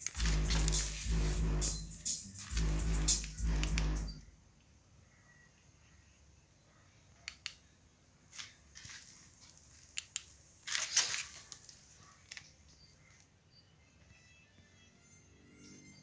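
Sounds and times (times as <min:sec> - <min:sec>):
crinkling scraping rustles: 0:00.0 - 0:04.2, 0:08.3 - 0:09.9, 0:10.6 - 0:12.6.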